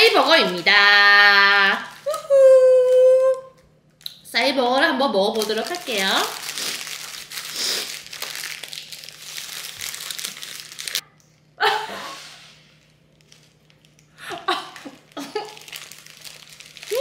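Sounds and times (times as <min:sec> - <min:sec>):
paper wrapper crinkling: 0:00.0 - 0:03.4, 0:05.3 - 0:11.0, 0:12.8 - 0:17.0.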